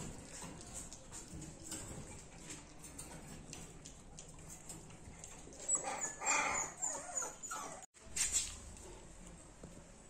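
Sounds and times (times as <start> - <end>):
puppy whimpering and yelping: 5.6 - 7.9.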